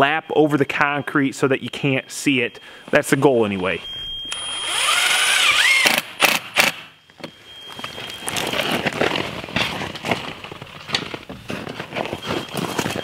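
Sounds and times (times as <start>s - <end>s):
cordless drill whining: 4.1s - 6.8s
footsteps on plastic sheeting: 7.8s - 13.0s.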